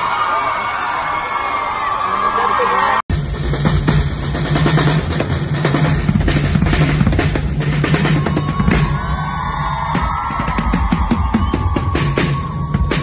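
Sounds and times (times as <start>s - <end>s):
drum kit played hard: 3.1s - 13.0s.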